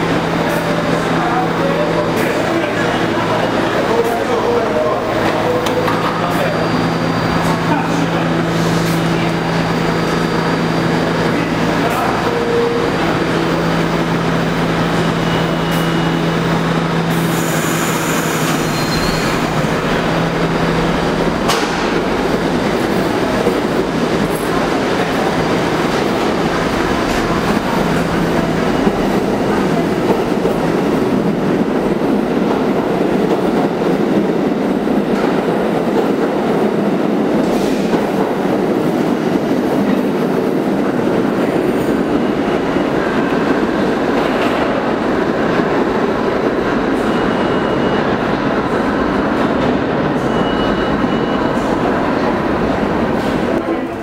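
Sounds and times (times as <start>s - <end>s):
subway train rumbling on rails: 0.0s - 54.0s.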